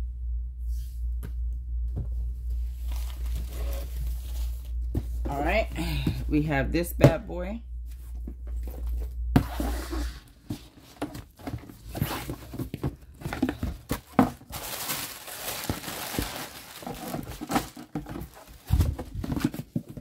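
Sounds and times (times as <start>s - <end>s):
paper and plastic crinkling: 2.8s - 5.6s, 9.6s - 20.0s.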